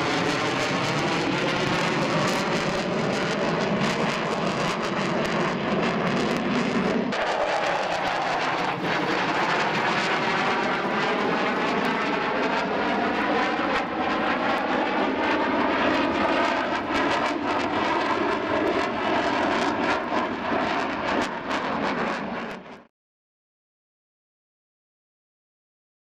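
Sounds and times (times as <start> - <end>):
fighter jet engines roaring past: 0.0 - 22.9.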